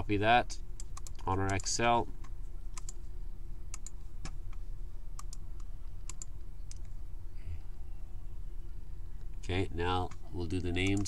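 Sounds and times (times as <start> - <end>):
steady low hum: 0.0 - 11.0
computer mouse clicks: 0.8 - 3.0, 3.7 - 4.6, 5.2 - 6.9.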